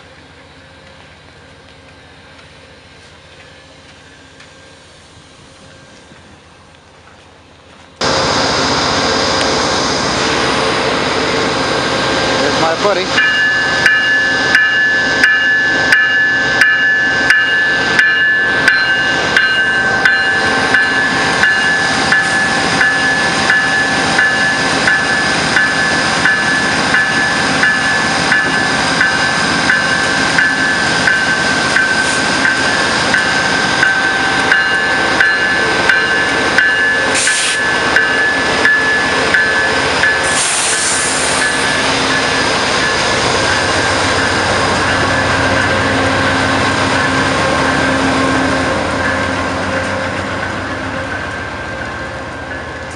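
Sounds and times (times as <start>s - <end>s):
railway warning bell dinging: 0.0s - 9.6s, 10.3s - 52.9s
diesel locomotive rumble: 0.0s - 52.9s
passing train rolling noise: 0.0s - 52.9s
air hisses: 37.1s - 37.7s, 40.2s - 41.6s.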